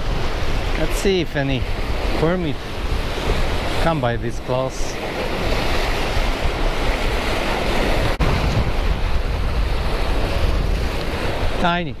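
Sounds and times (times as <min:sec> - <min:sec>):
surf breaking over rocks: 0:00.0 - 0:11.9
wind buffeting microphone: 0:00.0 - 0:12.0.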